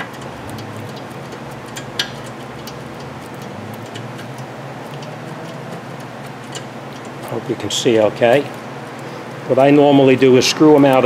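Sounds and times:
ratchet clicking: 0:00.0 - 0:07.4
steady low hum: 0:00.0 - 0:11.0.

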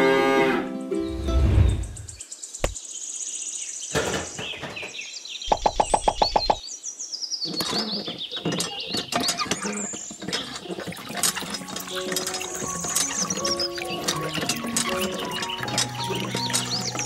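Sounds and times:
birds chirping: 0:00.7 - 0:17.0
knocking: 0:04.0 - 0:06.6.

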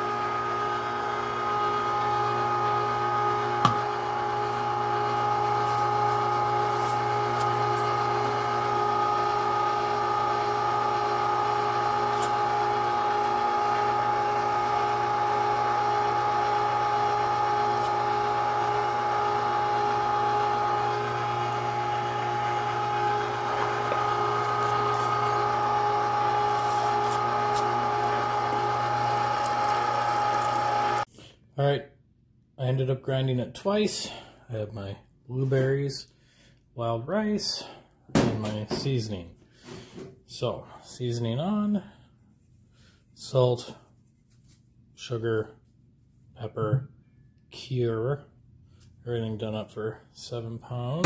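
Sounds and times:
electric meat grinder humming: 0:00.0 - 0:31.1.

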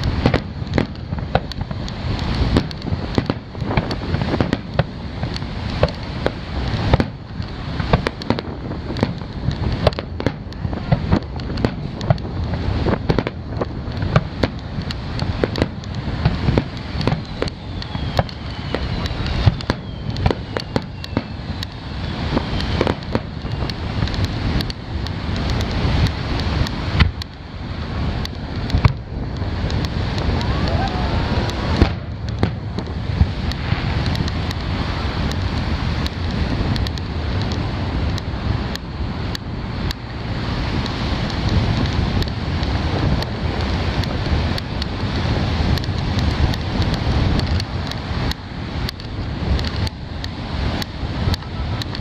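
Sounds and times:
firework bangs and crackles: 0:00.0 - 0:52.0.

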